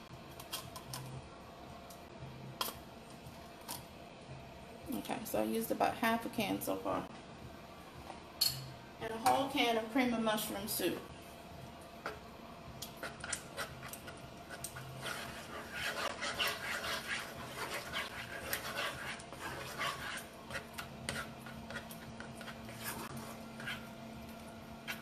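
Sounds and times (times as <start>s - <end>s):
spatula stirring thick soup in skillet: 12.0s - 25.0s.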